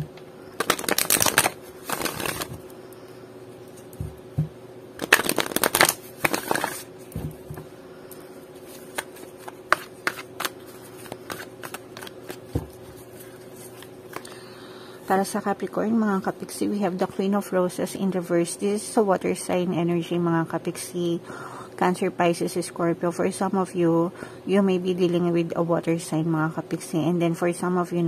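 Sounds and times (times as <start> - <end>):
cards riffle shuffling: 0.6 - 2.6, 5.0 - 6.9, 8.6 - 14.3.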